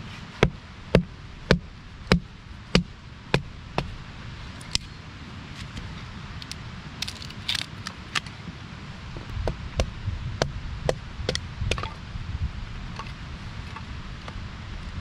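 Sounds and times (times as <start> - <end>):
hatchet striking wood: 0.4 - 3.9, 9.4 - 11.9.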